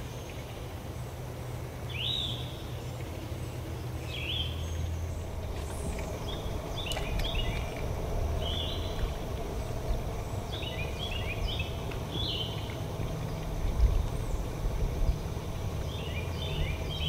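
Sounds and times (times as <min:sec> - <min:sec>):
birds chirping: 0:00.0 - 0:17.0
steady low rumble: 0:00.0 - 0:17.0.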